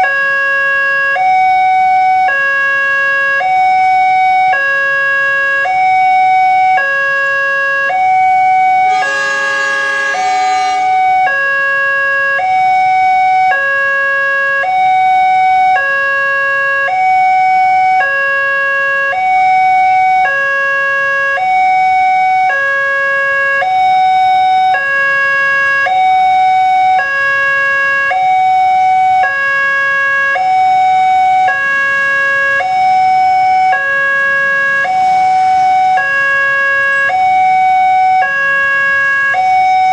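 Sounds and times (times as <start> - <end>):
two-tone crossing alarm: 0.0 - 39.9
richer pitched tone: 8.7 - 11.7.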